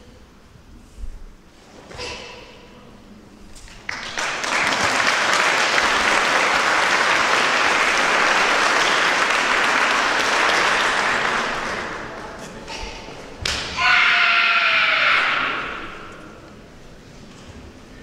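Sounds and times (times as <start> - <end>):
audience applauding: 3.7 - 12.2.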